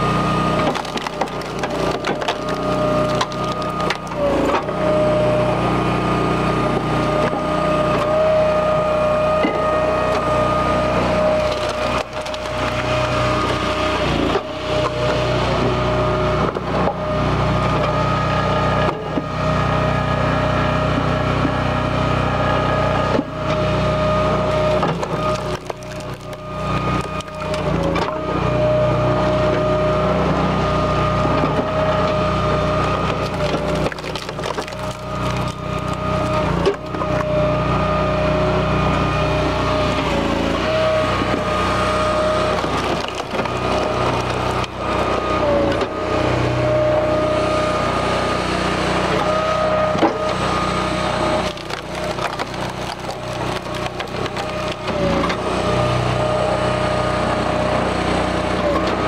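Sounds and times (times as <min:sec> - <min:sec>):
engine and pump whine: 0:00.0 - 0:59.0
logs cracking and splintering: 0:00.1 - 0:04.8, 0:09.7 - 0:15.2, 0:24.3 - 0:28.3, 0:32.3 - 0:37.4, 0:39.8 - 0:45.9, 0:51.0 - 0:55.8.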